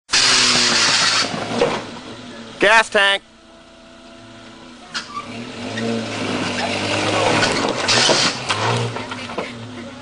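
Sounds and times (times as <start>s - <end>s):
small engine revving: 0.1s - 1.9s, 4.9s - 10.0s.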